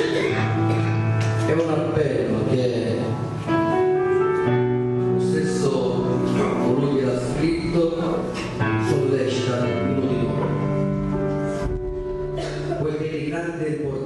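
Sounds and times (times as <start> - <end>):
worship music on stage piano: 0.0 - 14.0.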